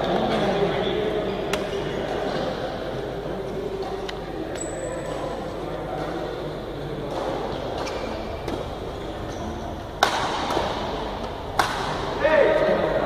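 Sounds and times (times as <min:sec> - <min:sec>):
background noise: 0:00.0 - 0:13.0
racket striking shuttlecock: 0:10.0 - 0:12.1.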